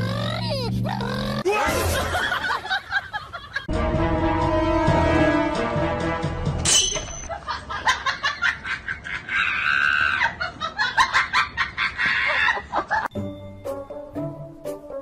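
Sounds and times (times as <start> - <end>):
background music sustained notes: 3.7 - 6.8, 13.1 - 15.0.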